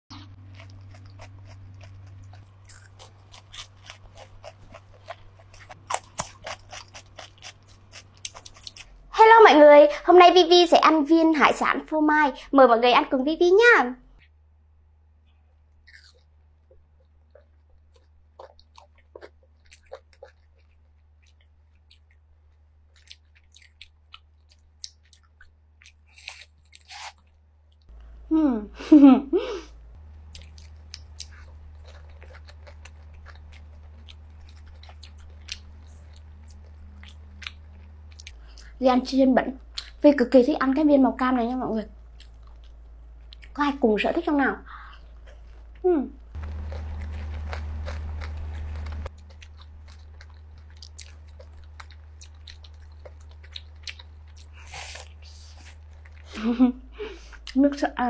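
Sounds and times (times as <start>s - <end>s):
crunching crisp food: 0.1s - 9.1s, 15.8s - 28.2s, 30.0s - 38.8s, 41.9s - 43.6s, 44.8s - 57.6s
steady low hum: 0.1s - 26.5s, 27.1s - 58.0s.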